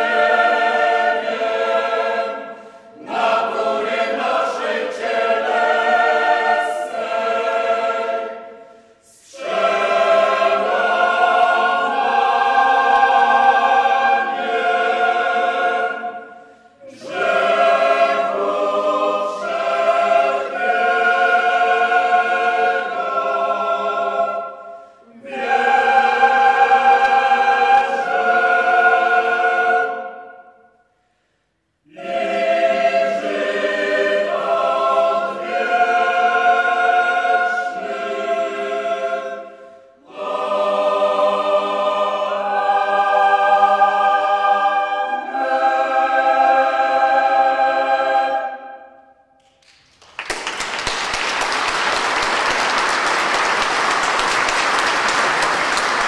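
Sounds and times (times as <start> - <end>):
choir singing held chords: 0.0 - 49.5
audience applauding: 49.6 - 56.0.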